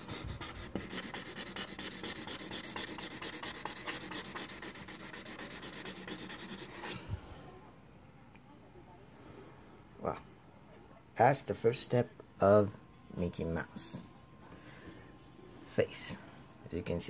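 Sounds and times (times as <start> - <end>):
marker scrubbing on paper: 0.0 - 7.0.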